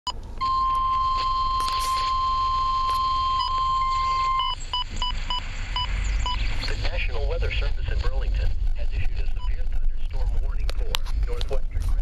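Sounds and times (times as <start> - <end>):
short alarm beeps: 0.4 - 6.4
steady high alarm tone: 0.4 - 6.4.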